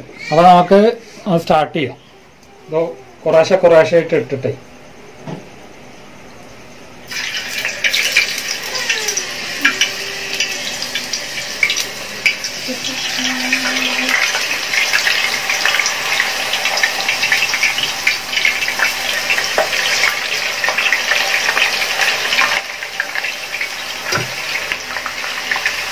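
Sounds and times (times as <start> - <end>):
potato slices sizzling in oil: 7.1 - 25.9.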